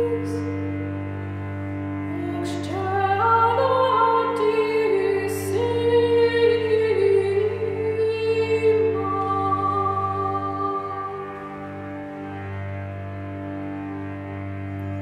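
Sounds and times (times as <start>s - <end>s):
low cello drone: 0.0s - 15.0s
woman singing a chant: 2.1s - 11.2s.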